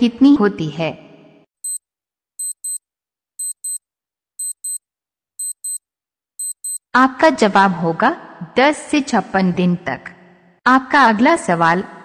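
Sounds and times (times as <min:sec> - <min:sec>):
clock ticking: 0:02.4 - 0:02.8, 0:03.4 - 0:03.8, 0:04.4 - 0:04.8, 0:05.4 - 0:05.8, 0:06.4 - 0:06.8.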